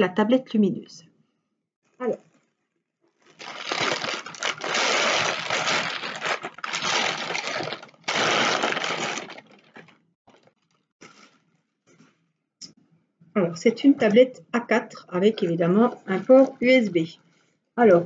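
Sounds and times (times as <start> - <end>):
plastic bag crinkling: 3.2 - 11.3.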